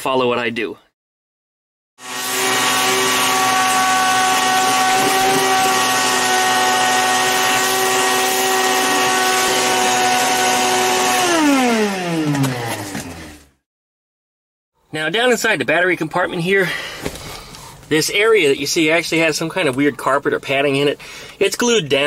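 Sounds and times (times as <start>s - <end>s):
shop vacuum whining: 2.0s - 13.6s.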